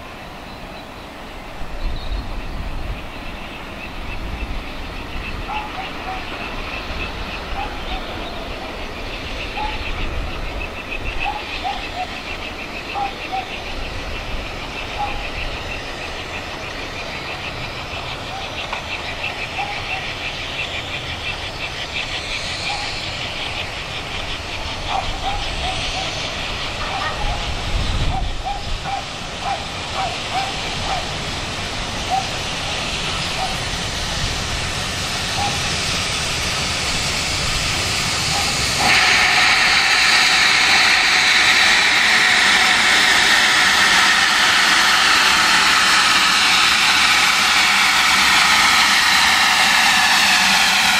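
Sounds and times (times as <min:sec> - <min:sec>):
birds chirping: 0:00.0 - 0:31.2
steam locomotive rumble: 0:00.0 - 0:50.9.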